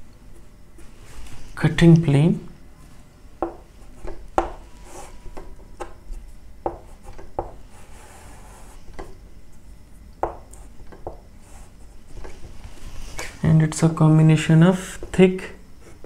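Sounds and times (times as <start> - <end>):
chalk tapping on chalkboard: 3.4 - 6.0, 6.6 - 9.1, 10.2 - 11.2.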